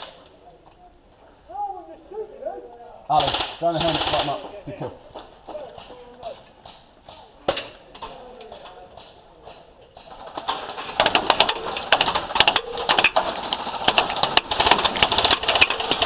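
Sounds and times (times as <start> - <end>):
full-auto airsoft gun rattle: 8.0 - 16.0.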